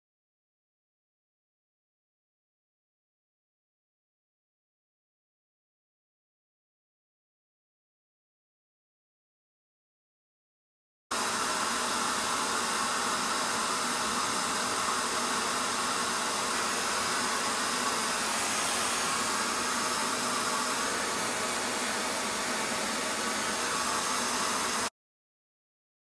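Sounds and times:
blower machine rushing air: 0:11.1 - 0:24.9.

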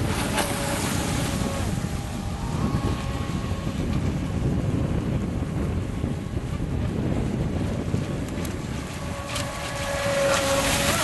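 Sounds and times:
model speedboats whining: 0:00.0 - 0:11.0
wind buffeting microphone: 0:00.0 - 0:11.0.

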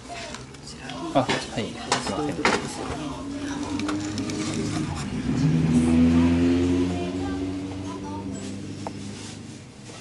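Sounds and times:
vehicle engine passing by: 0:03.1 - 0:09.8.

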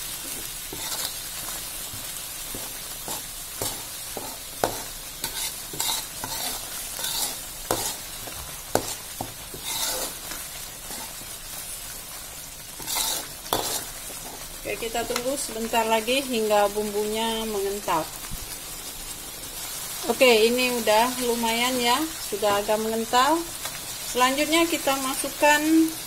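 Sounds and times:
spice paste sizzling in a wok: 0:00.0 - 0:26.0
metal ladle scraping a pan: 0:00.3 - 0:01.6, 0:02.5 - 0:11.3, 0:12.7 - 0:14.4.

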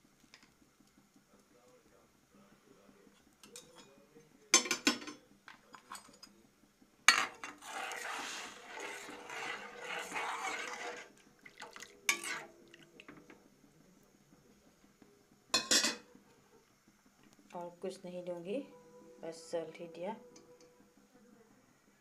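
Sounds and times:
stirring chicken in water: 0:07.6 - 0:13.2.

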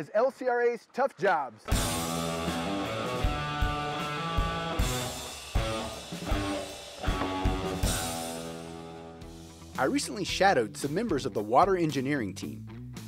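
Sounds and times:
rock guitar: 0:01.6 - 0:09.8
drum kit beat: 0:01.7 - 0:12.1.

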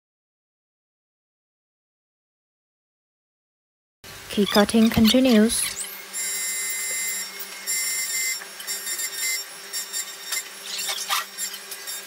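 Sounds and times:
high-pitched cutter whine: 0:04.1 - 0:12.0
key cutting machine motor hum: 0:05.0 - 0:12.0.

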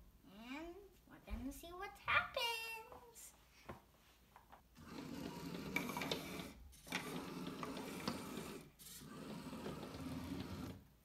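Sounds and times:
robot electric motors whirring: 0:04.8 - 0:10.8.

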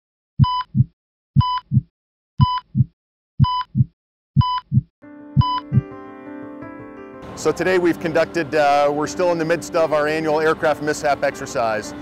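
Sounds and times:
short electronic beep: 0:00.4 - 0:01.8, 0:02.4 - 0:02.7, 0:03.4 - 0:04.8, 0:05.4 - 0:05.8
heartbeat: 0:00.4 - 0:05.9
sustained music: 0:05.0 - 0:12.0.

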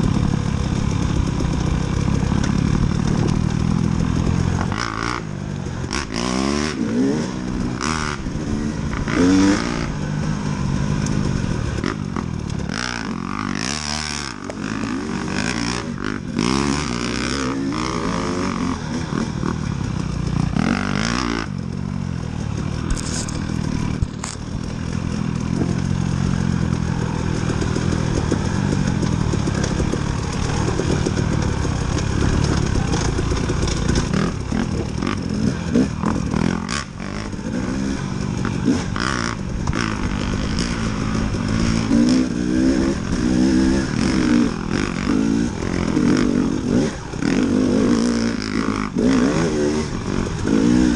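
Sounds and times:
dirt bike engine revving: 0:00.0 - 0:50.9
bike clattering over rough ground: 0:19.9 - 0:42.2.

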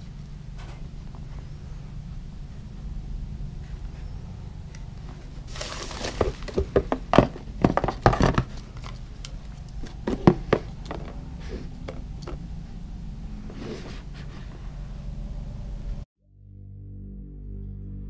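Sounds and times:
cardboard box rustling: 0:05.4 - 0:09.2
knocks and thuds of handling: 0:05.5 - 0:09.0, 0:09.8 - 0:12.4.

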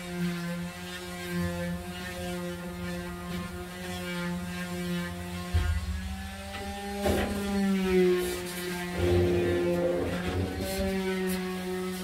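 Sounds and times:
low electrical motor hum: 0:05.9 - 0:11.8.

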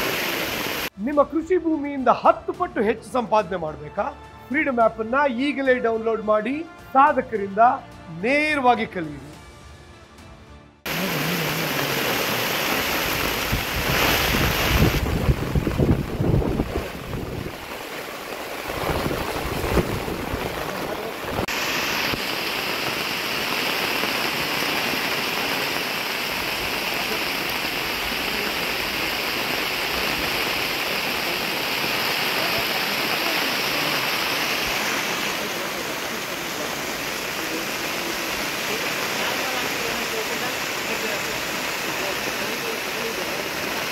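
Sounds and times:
heavy rain falling: 0:00.0 - 0:01.0, 0:10.9 - 0:43.9
wind buffeting microphone: 0:13.1 - 0:17.7, 0:18.7 - 0:21.5.

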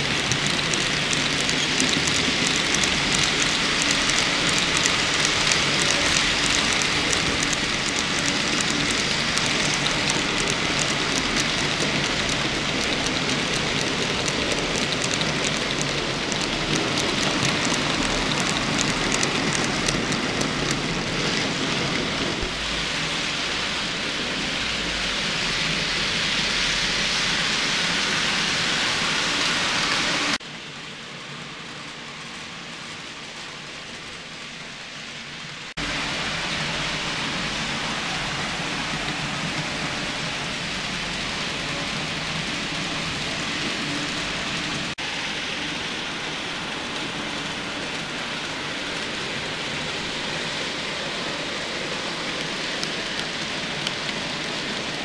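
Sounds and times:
model train wheels rattling: 0:00.0 - 0:22.6, 0:35.8 - 0:55.0.

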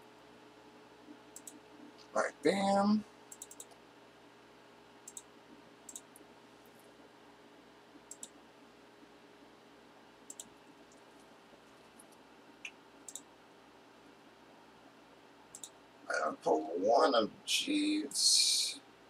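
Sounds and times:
faint computer mouse clicks: 0:01.4 - 0:02.1, 0:03.3 - 0:03.8, 0:05.0 - 0:05.3, 0:05.9 - 0:06.2, 0:08.1 - 0:08.4, 0:10.3 - 0:11.0, 0:12.0 - 0:13.3, 0:15.5 - 0:15.8.

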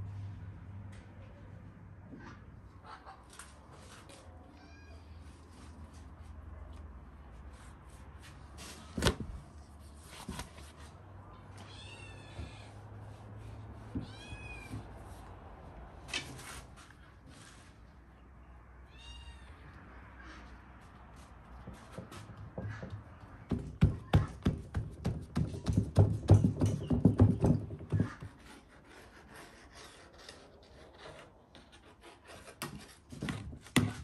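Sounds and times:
sharp knocks: 0:21.7 - 0:28.4.

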